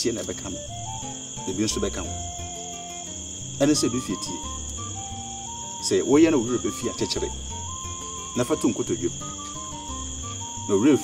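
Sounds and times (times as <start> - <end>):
crickets trilling: 0.0 - 11.0
soft slow background music: 0.0 - 11.0
person speaking: 1.4 - 2.3, 3.6 - 4.6, 5.8 - 7.5.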